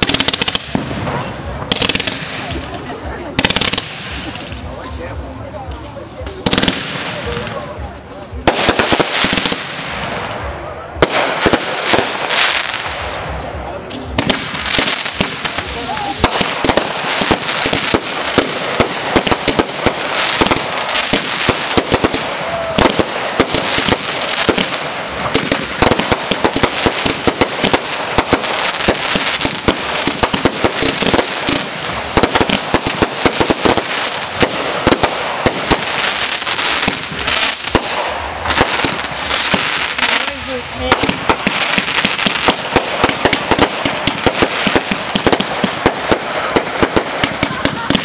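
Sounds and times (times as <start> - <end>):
fireworks popping and crackling: 0.0 - 48.0.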